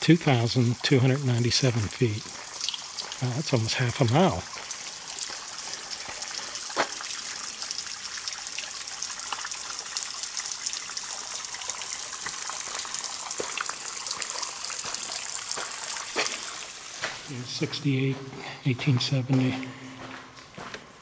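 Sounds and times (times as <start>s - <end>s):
water trickling: 0.0s - 18.6s
water dripping: 0.0s - 20.7s.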